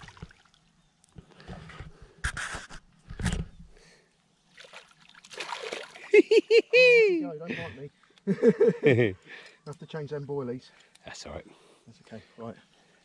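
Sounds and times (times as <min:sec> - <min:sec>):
fish splashing in water: 0:04.5 - 0:06.1.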